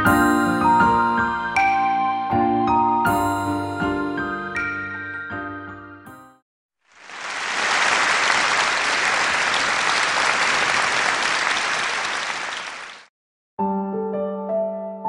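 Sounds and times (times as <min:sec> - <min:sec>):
crowd applauding: 0:06.9 - 0:13.1.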